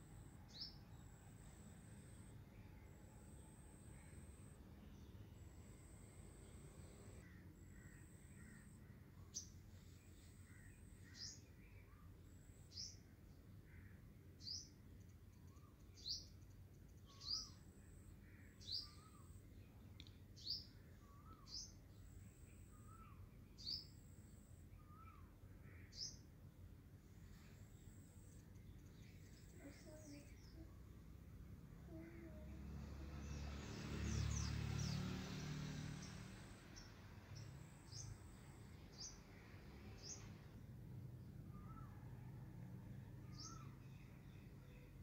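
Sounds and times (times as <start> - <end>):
bird chirping: 14.4 - 26.3, 27.2 - 30.8, 43.2 - 45.0.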